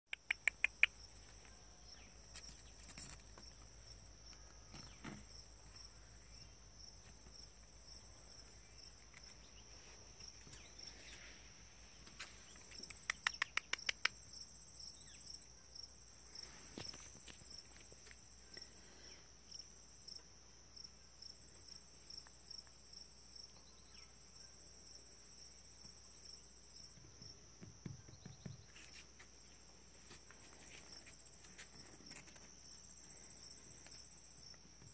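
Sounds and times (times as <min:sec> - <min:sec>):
sharp clicks: 0:00.1 - 0:01.0, 0:12.7 - 0:14.2
insect chorus chirping: 0:00.1 - 0:34.9.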